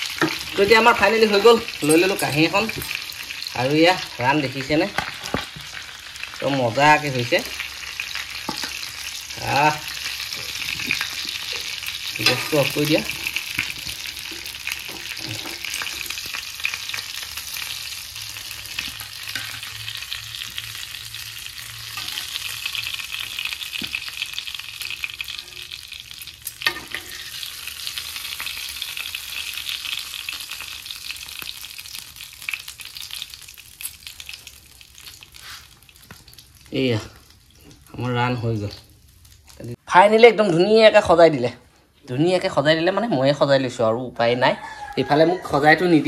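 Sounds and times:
oil sizzling and crackling: 0.0s - 39.8s.

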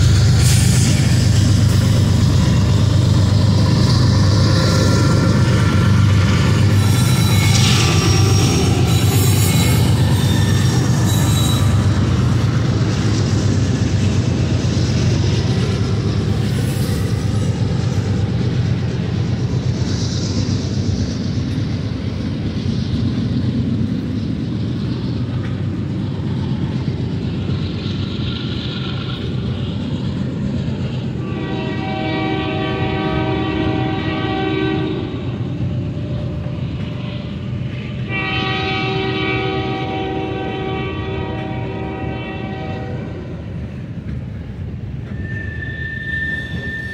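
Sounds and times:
freight train rumbling past: 0.0s - 46.9s
locomotive horn blast: 31.2s - 35.3s, 38.0s - 43.3s.

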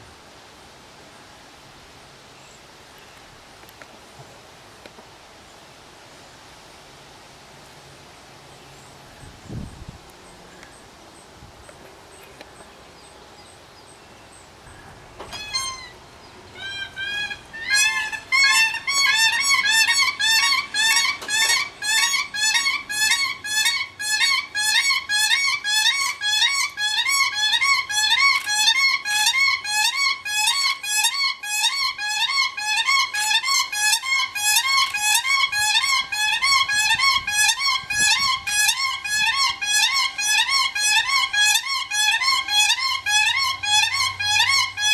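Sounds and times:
cranes calling: 14.6s - 44.9s.

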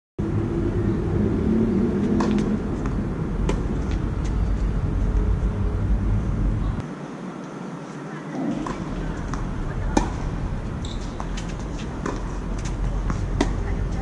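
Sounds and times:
low outdoor rumble: 0.2s - 6.9s, 8.0s - 14.0s
tennis ball struck by rackets: 2.1s - 4.0s, 8.5s - 10.3s, 10.9s - 14.0s.

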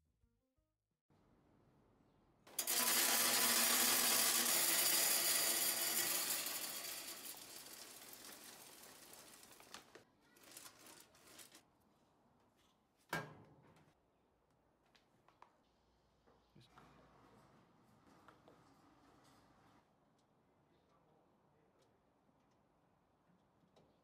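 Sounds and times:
pellets pouring into metal hopper: 2.6s - 11.6s.

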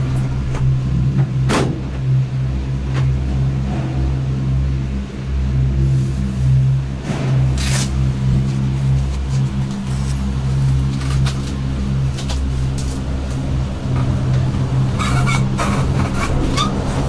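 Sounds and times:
cabin clanking and rattling: 0.0s - 3.5s
lift machinery humming: 0.0s - 17.0s.

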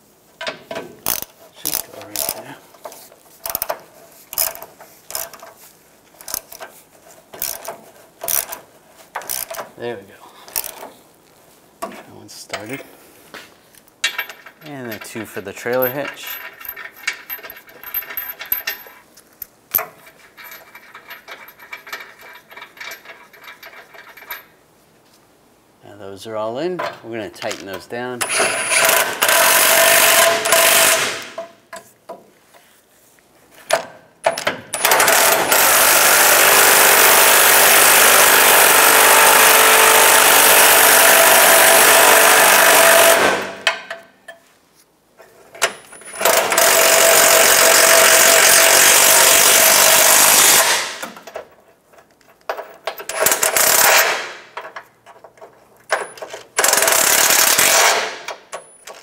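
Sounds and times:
impact wrench hammering bolts: 0.4s - 5.6s, 6.2s - 9.8s, 10.5s - 10.9s, 14.0s - 18.9s, 19.7s - 24.4s, 26.8s - 31.9s, 33.6s - 44.4s, 45.6s - 51.6s, 52.5s - 59.0s.

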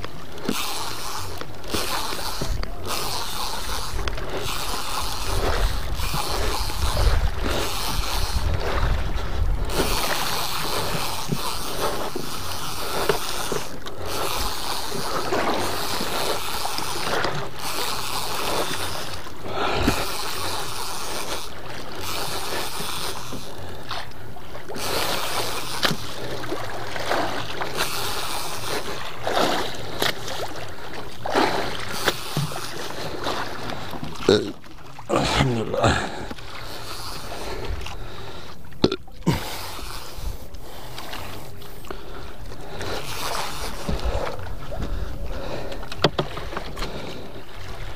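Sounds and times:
fishing reel cranking: 0.0s - 34.6s, 35.2s - 47.3s
sea noise: 0.0s - 47.9s
wind buffeting microphone: 4.0s - 10.3s.

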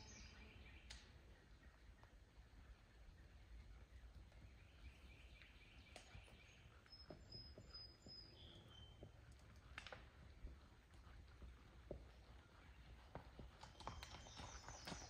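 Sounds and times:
horse hooves on dirt: 0.0s - 15.0s.

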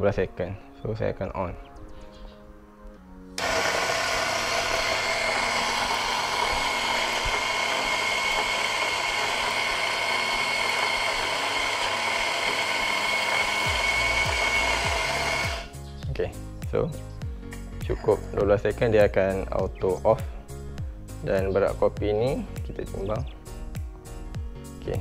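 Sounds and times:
electric coffee grinder whining: 3.4s - 15.7s.

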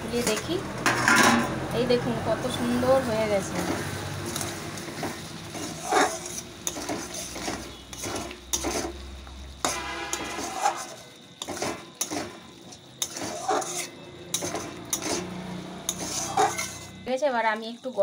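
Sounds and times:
spoon scraping and clinking pan: 0.2s - 1.6s, 4.4s - 9.0s, 9.6s - 17.1s.

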